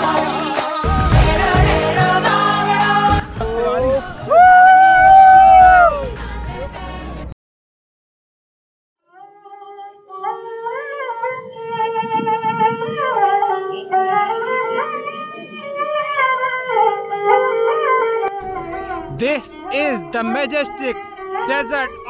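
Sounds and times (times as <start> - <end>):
ornamented melody with sliding notes: 11.5 - 22.0.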